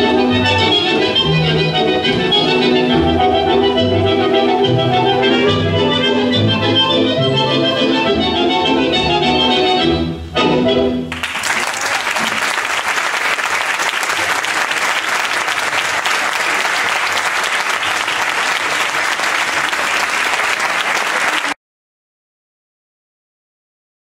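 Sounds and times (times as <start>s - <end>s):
audience applauding: 11.1s - 21.6s.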